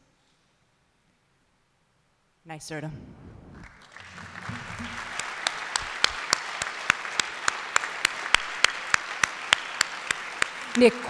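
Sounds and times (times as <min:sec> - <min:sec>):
audience applauding: 0:03.5 - 0:11.0
close hands clapping steady beat: 0:03.6 - 0:11.0.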